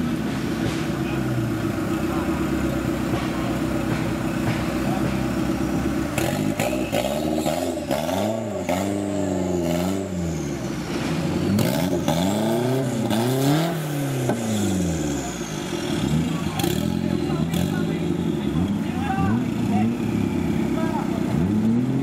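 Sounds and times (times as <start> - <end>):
off-road engine revving hard: 0.0 - 22.0
chassis knocks and clatter: 3.0 - 5.5.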